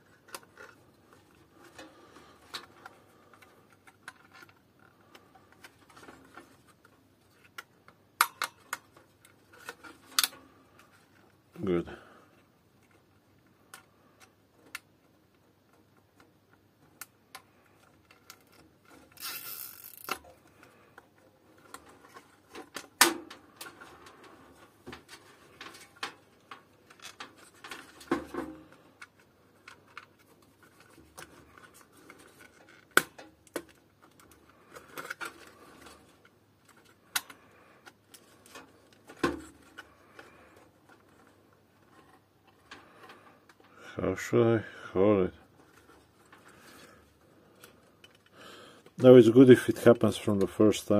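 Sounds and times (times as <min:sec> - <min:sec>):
plastic zip ties clicking and tapping: 0:16.9 - 0:20.7, 0:24.9 - 0:41.3.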